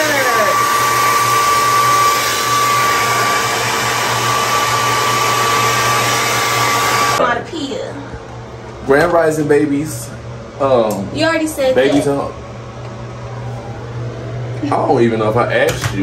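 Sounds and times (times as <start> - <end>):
hair dryer blowing: 0.0 - 7.2.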